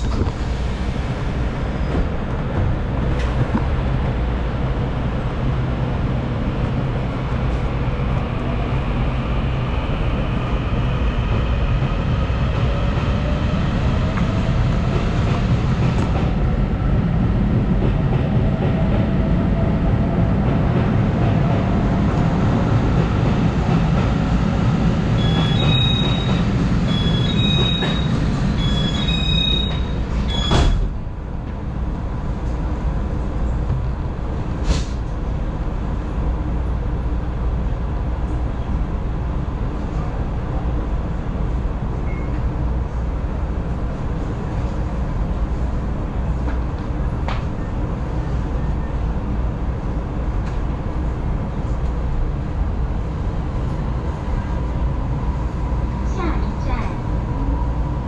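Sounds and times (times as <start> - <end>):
train rumble on rails: 0.0 - 58.0
high beeping: 25.2 - 29.8.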